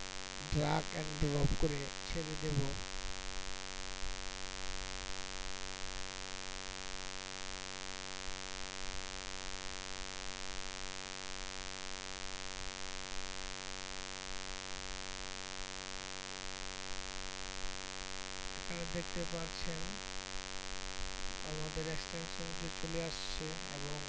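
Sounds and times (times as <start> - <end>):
buzzy mains hum: 0.0 - 24.0
background hiss: 17.4 - 24.0.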